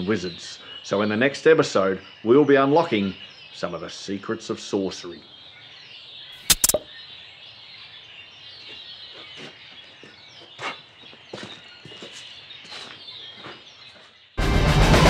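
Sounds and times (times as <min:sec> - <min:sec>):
birds chirping: 0:04.9 - 0:14.4.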